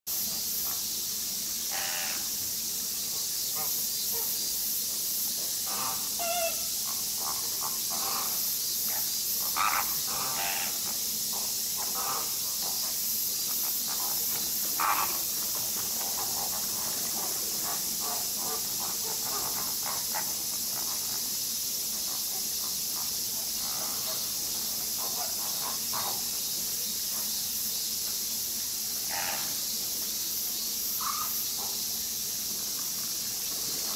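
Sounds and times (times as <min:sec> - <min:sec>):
high-pitched hiss: 0:00.1 - 0:33.9
flamingo flock calling: 0:01.7 - 0:02.2, 0:05.6 - 0:12.8, 0:13.9 - 0:21.1, 0:29.1 - 0:29.6, 0:31.0 - 0:31.8.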